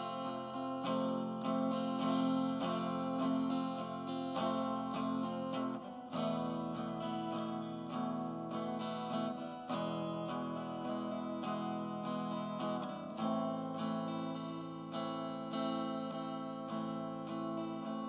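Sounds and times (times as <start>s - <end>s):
acoustic guitar instrumental music: 0.0s - 18.0s.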